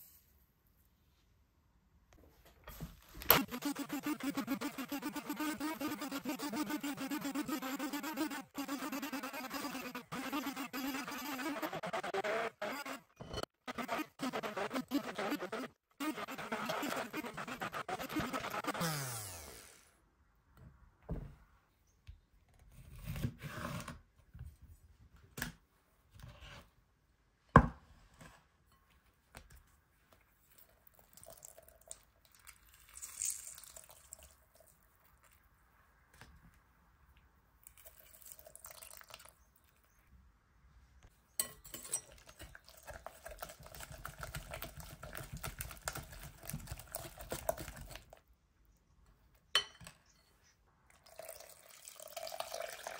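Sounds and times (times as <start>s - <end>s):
whisk stirring in glass bowl: 42.0s - 48.0s.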